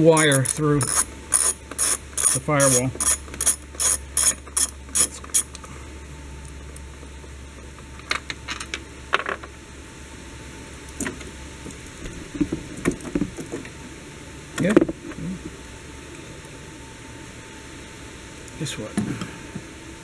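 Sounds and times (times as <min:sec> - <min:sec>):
ratchet wrench clicking: 0:00.2 - 0:05.5
tool clicking on metal: 0:00.2 - 0:05.5.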